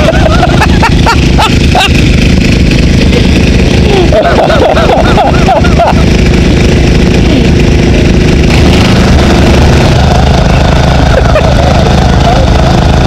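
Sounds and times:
water jets spraying: 0:00.0 - 0:02.1
small engine idling: 0:00.0 - 0:13.0.

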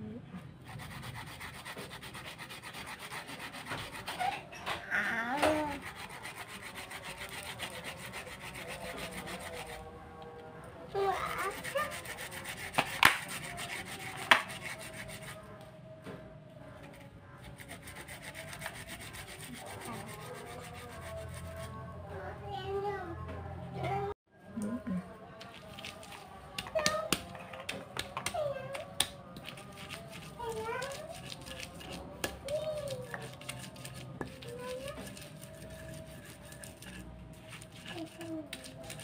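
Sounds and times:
pestle grinding in stone mortar: 0:11.4 - 0:15.3, 0:29.0 - 0:39.0.

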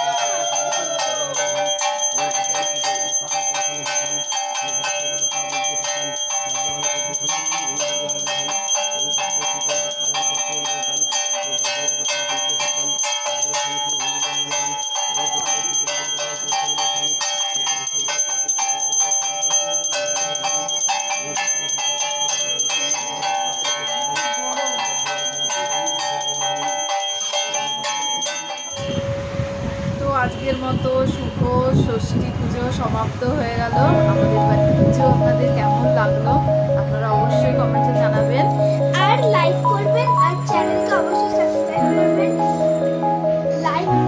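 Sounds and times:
hand bell ringing rapidly: 0:00.0 - 0:30.0, 0:38.1 - 0:43.0.

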